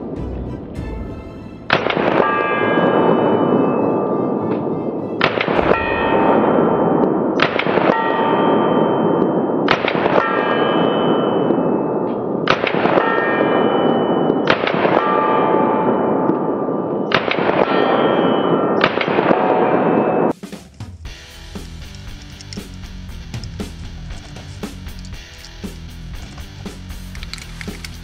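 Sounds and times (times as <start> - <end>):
rifle shots: 5.2 - 8.4, 12.4 - 13.2
metallic ringing: 5.5 - 9.6.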